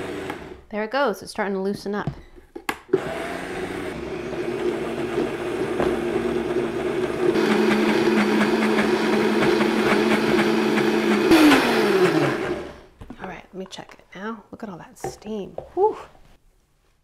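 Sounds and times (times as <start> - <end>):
blender grinding nuts: 0.0 - 0.7, 2.9 - 12.9.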